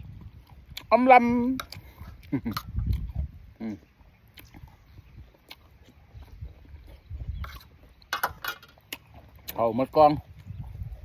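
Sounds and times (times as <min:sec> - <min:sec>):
person chewing: 0:00.0 - 0:09.6
wet mouth clicks: 0:01.6 - 0:07.7.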